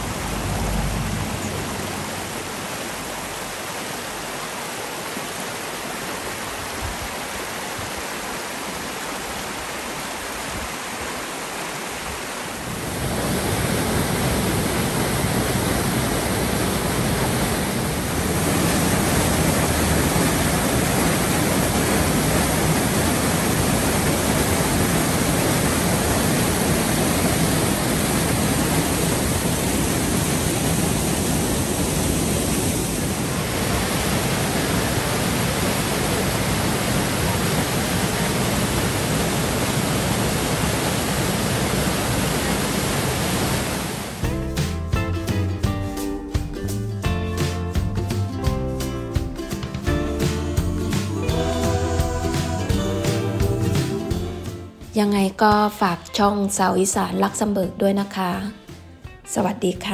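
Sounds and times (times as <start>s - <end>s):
waterfall pouring into pool: 0.0s - 44.2s
stream rushing over rocks: 0.0s - 44.3s.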